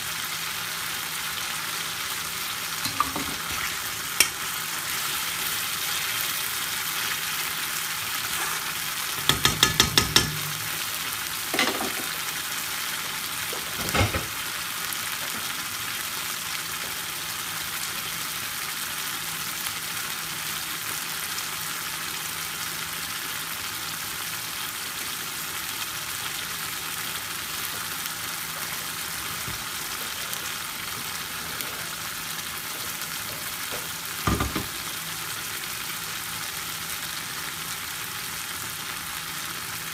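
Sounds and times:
curry sauce sizzling in a pan: 0.0 - 39.9
metal spoon knocking against pan: 9.2 - 10.8.

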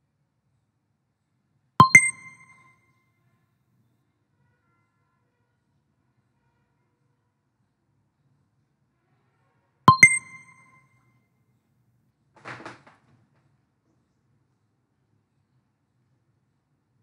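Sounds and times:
bright two-stroke ding: 1.8 - 2.7, 9.9 - 10.8.

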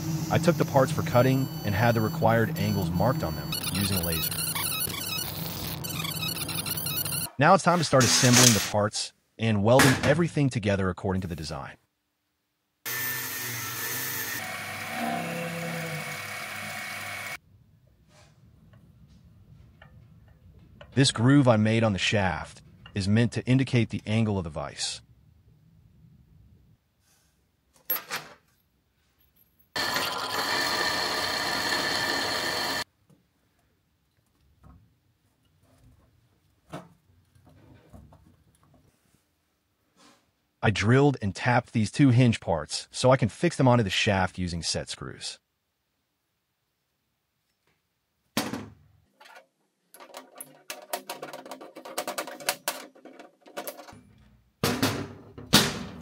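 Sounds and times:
drill press drilling steel: 12.9 - 17.4, 29.8 - 32.8.

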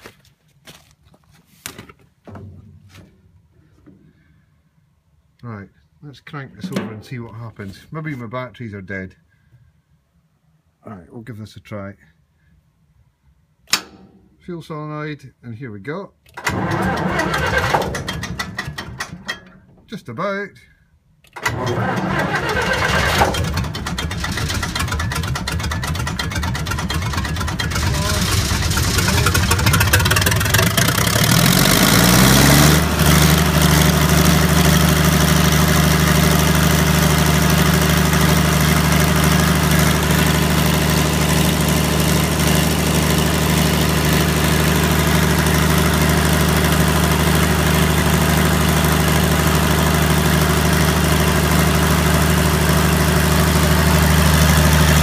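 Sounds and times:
diesel generator engine running: 16.4 - 19.8, 21.4 - 55.0.

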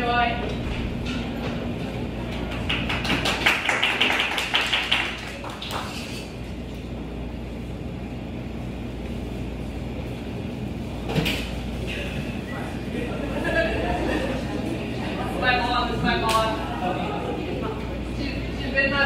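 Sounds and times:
low room hum: 0.0 - 19.0
audience clapping: 2.3 - 6.3.

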